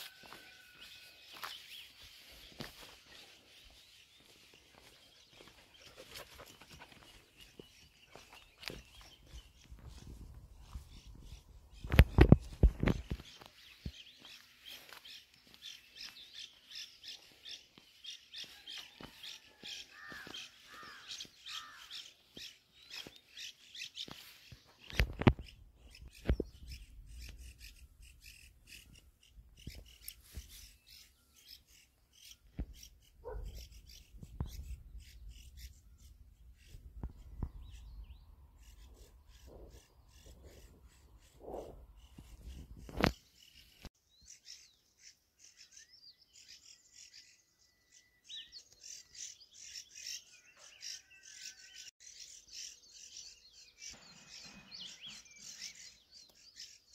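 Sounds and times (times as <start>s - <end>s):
birds chirping: 0.0s - 56.9s.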